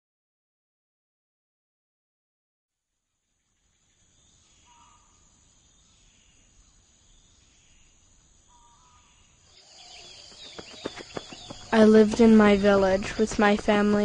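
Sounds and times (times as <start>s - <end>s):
insects chirring: 3.5s - 14.0s.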